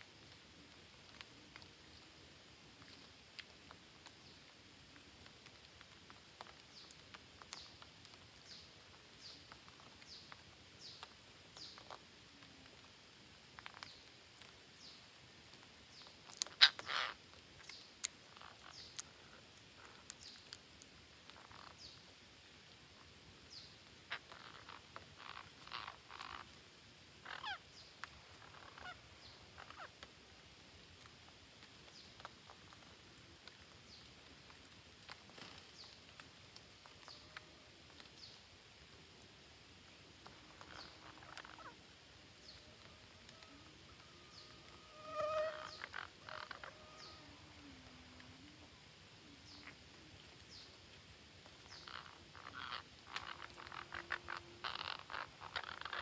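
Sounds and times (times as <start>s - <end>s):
parakeets squawking: 16.6s - 17.2s, 27.3s - 27.6s, 44.9s - 47.2s, 51.9s - 56.0s.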